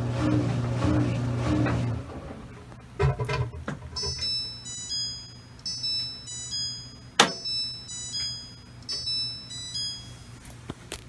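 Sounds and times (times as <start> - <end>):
low steady hum: 0.0 - 11.0
washer beeping tune: 3.9 - 10.4.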